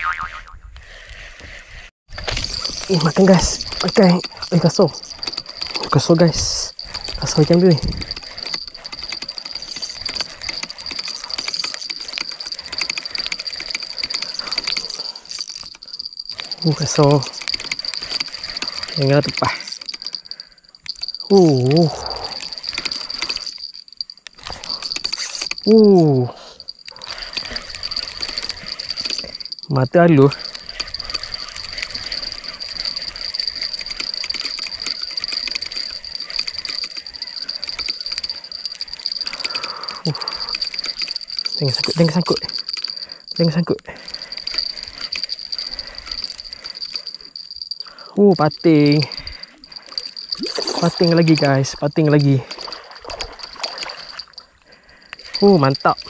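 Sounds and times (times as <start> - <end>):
fishing reel clicking: 2.2 - 56.0
high insect drone: 2.2 - 56.0.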